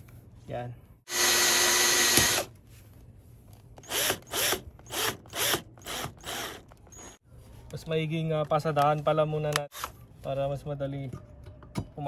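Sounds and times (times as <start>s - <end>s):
cordless drill driving a screw: 1.1s - 2.5s, 3.8s - 7.2s.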